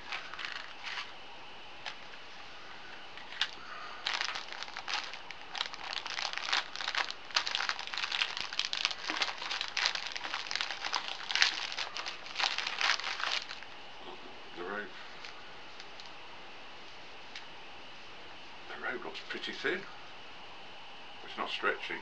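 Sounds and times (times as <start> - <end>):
plastic packaging crinkling: 0.0 - 1.2, 3.2 - 13.7.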